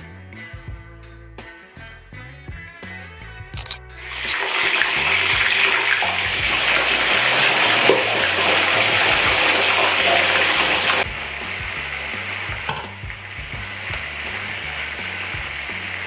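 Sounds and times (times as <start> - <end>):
stove cooking hiss: 4.3 - 16.0.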